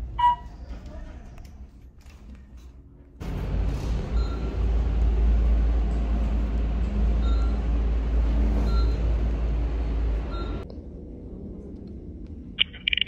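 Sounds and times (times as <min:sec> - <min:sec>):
elevator low rumble: 0:02.8 - 0:13.0.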